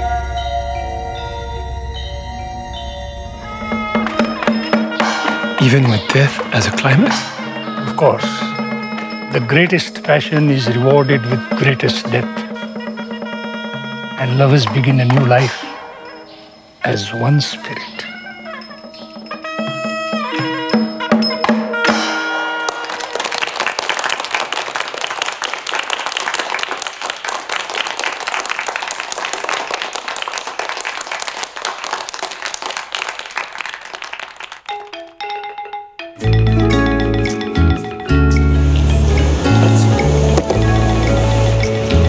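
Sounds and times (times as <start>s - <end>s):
music with heavy low notes: 0.0s - 12.4s, 36.2s - 42.0s
percussion music: 0.0s - 42.0s.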